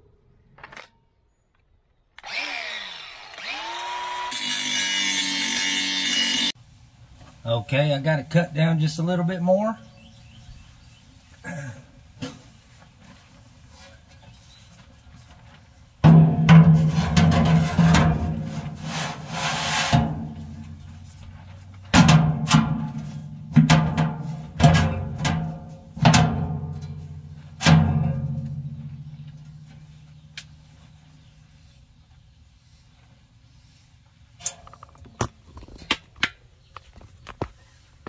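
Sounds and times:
steel plate scraping and clattering: 16.1s - 30.0s.

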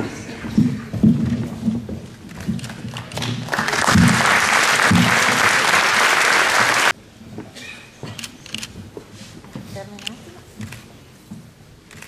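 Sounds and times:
audience applauding: 2.9s - 7.0s.

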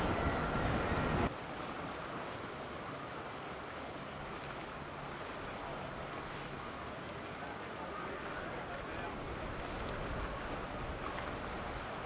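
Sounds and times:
wind noise: 0.0s - 1.3s
water wash: 0.0s - 12.0s.

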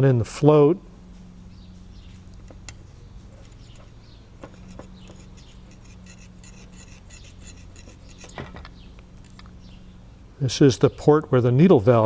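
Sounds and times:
low steady hum: 0.0s - 12.0s
wire scraping and ticking: 2.2s - 8.6s.

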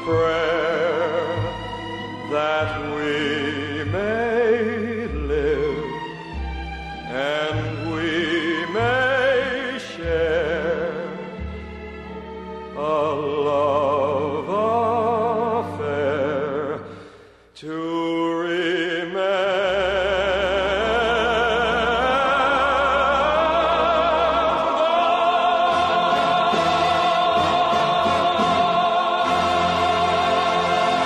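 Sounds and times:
orchestral accompaniment: 0.0s - 16.8s, 20.0s - 31.0s
operatic singing with vibrato: 0.0s - 31.0s.

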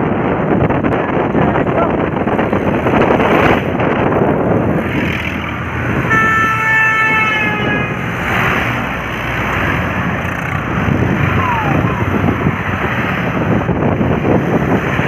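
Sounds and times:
road traffic rushing: 0.0s - 15.0s
wind noise: 0.0s - 15.0s
vehicle horn: 6.0s - 8.1s.

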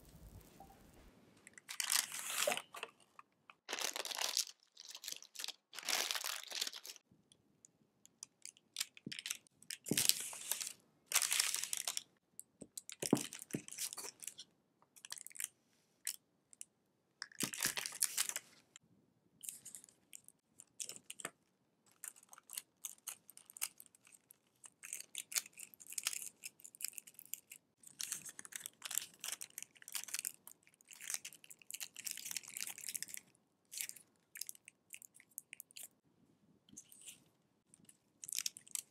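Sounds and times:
paper rustling and crinkling: 1.7s - 3.0s, 3.7s - 7.0s.

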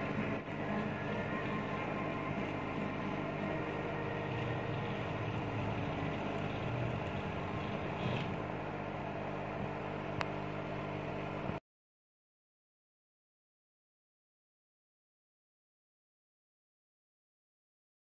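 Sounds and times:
laser engraver mechanical hum: 0.0s - 11.6s.

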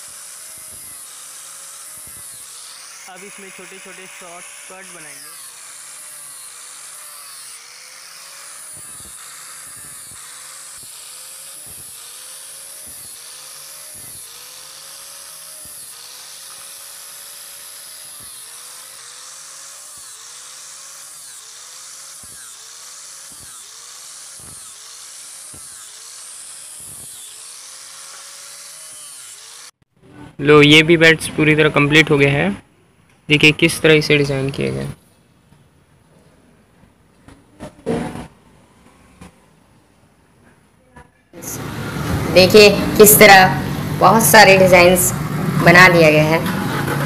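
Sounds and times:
angle grinder cutting wood: 0.0s - 29.8s, 41.4s - 47.0s.

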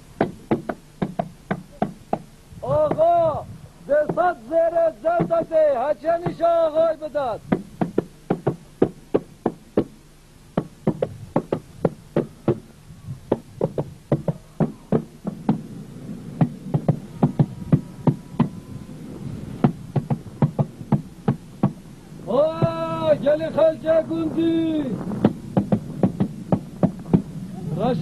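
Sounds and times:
knocking on a hard surface: 7.5s - 9.9s, 10.6s - 12.6s, 13.3s - 15.6s, 25.2s - 27.3s.

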